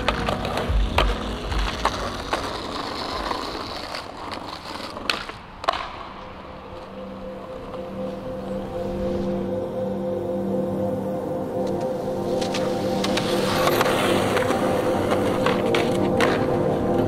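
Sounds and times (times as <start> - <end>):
skateboard clacks: 0.0 - 6.9, 12.4 - 17.0
skateboard wheels rolling on pavement: 0.0 - 9.7, 10.9 - 17.0
soft sustained music notes: 6.0 - 17.0.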